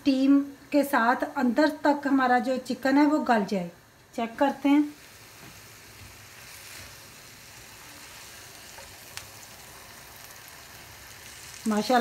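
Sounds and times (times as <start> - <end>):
chicken sizzling in frying pan: 3.9 - 12.0.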